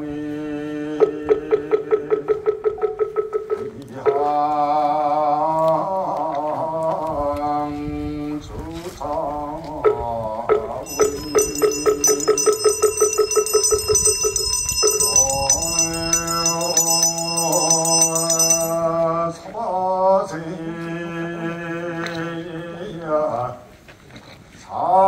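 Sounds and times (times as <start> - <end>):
person chanting: 0.0 - 2.4, 3.6 - 23.7
small handbell ringing: 10.9 - 19.0.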